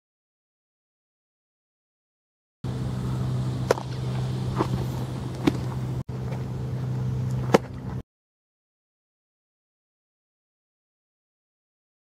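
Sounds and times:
steady low hum: 2.6 - 8.0
baseball smacking into leather glove: 5.4 - 5.7.

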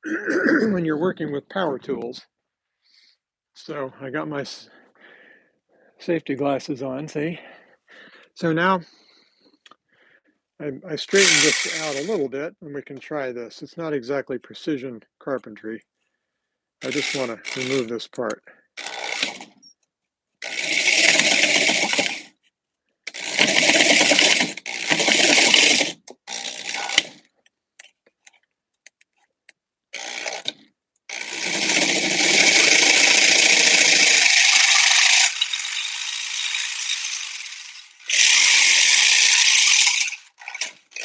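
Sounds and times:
electric saber saw cutting: 11.1 - 12.3, 16.8 - 17.9, 18.8 - 19.5, 20.4 - 22.3, 23.1 - 27.2, 30.0 - 41.0.

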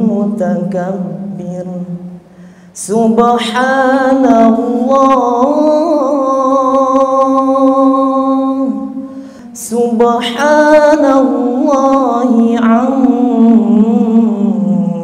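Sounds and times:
man chanting into a microphone: 0.0 - 15.0
breath: 2.2 - 2.8, 9.0 - 9.6.

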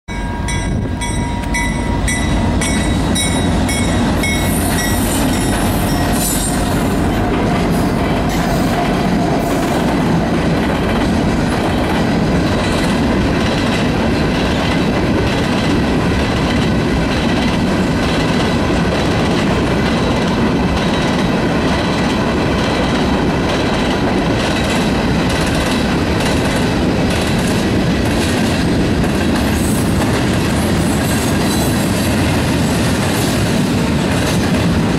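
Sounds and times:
crossing warning bell ringing: 0.1 - 7.3
steel wheels on rails: 0.1 - 34.9.

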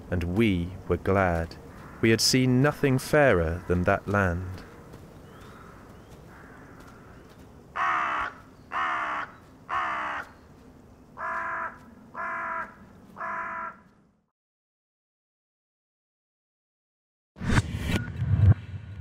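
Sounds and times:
faint outdoor ambience: 0.0 - 14.3
crow cawing: 1.7 - 2.2, 3.4 - 10.4, 11.2 - 14.1.

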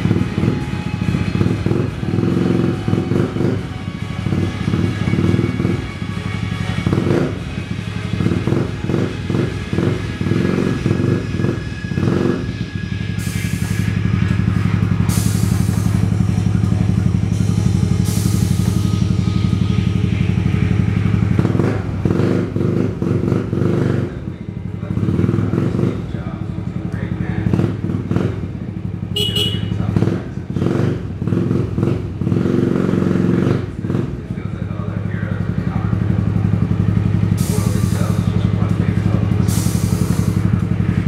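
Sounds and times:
scooter engine running: 0.0 - 13.3, 14.0 - 41.0
air hiss bursts: 13.2 - 14.0, 15.1 - 16.1, 18.0 - 18.9, 37.4 - 38.2, 39.5 - 40.5.

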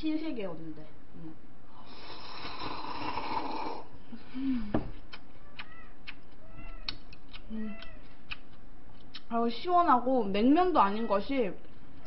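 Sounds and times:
person slurping broth: 1.8 - 3.9.

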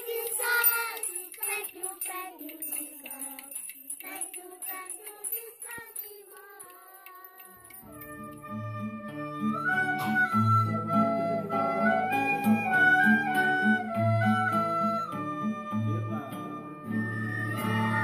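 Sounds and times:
children singing together: 0.0 - 7.8
recorders and acoustic guitar tune: 7.8 - 18.0.

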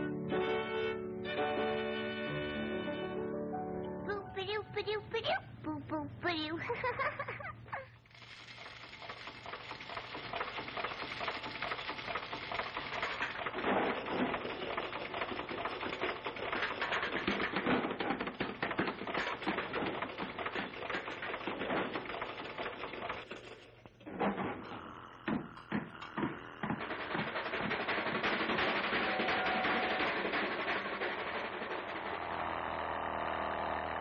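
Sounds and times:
machinery clattering and rattling: 6.7 - 34.0
knocks: 8.9 - 33.0.

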